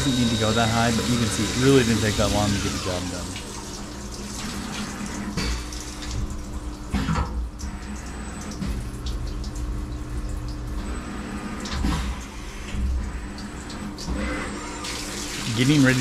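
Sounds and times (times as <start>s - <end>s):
coolant splashing: 0.0s - 16.0s
machine hum: 0.0s - 16.0s.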